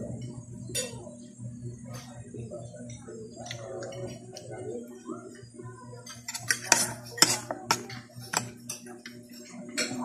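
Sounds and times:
fork clinking on a plate: 0:06.1 - 0:09.2.

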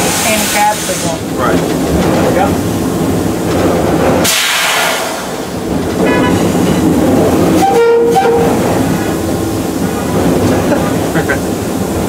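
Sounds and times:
diesel locomotive engine running: 0:00.0 - 0:12.0
air hissing burst: 0:04.2 - 0:05.5
locomotive horn: 0:06.0 - 0:06.6, 0:07.5 - 0:08.9.

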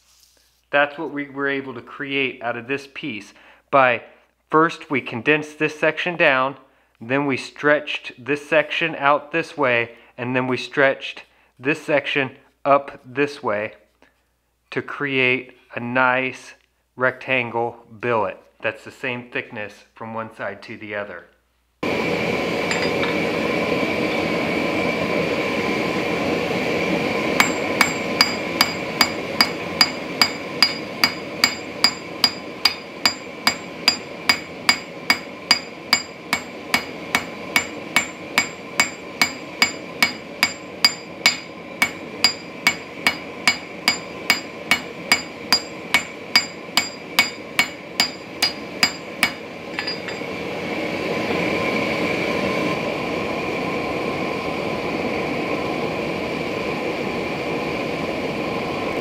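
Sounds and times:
forge burner roaring: 0:21.8 - 0:59.0
hammer ringing on anvil: 0:22.7 - 0:23.2, 0:27.4 - 0:50.3.

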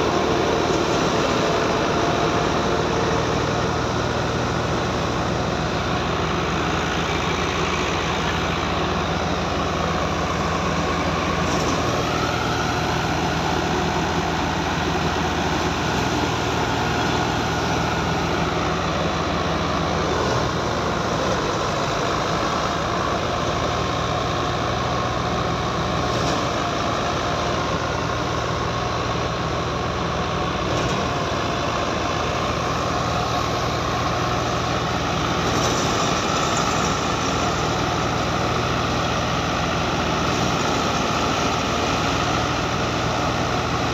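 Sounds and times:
high mechanical whine: 0:00.0 - 0:43.9.

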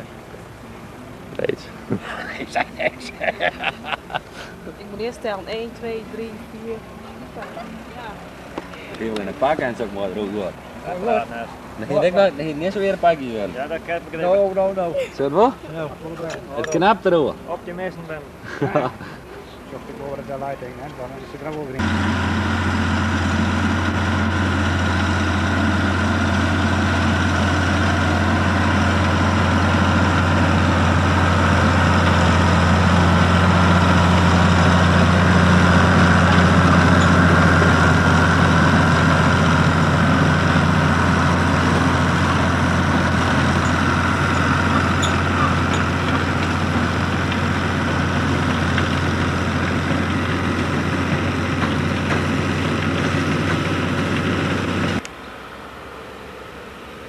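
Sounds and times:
tractor diesel engine running: 0:21.8 - 0:57.0.

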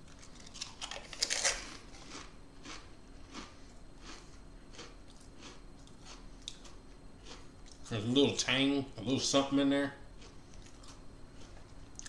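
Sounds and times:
crisps crunching: 0:00.0 - 0:08.4.

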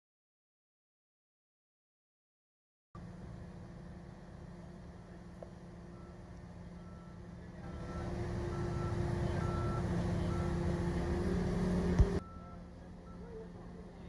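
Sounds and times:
diesel engine revving: 0:03.0 - 0:14.0
warning beeper short beeps: 0:06.8 - 0:10.8, 0:12.2 - 0:13.5.

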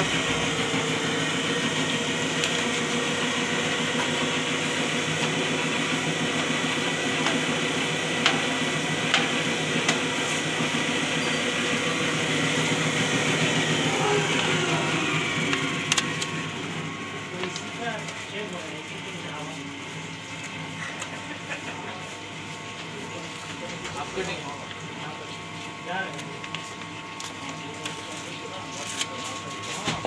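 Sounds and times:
paper machine clattering: 0:20.6 - 0:30.0.

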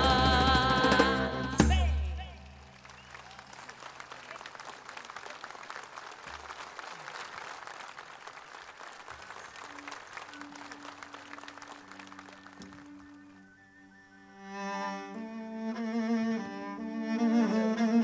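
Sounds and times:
audience applauding: 0:02.4 - 0:13.4.

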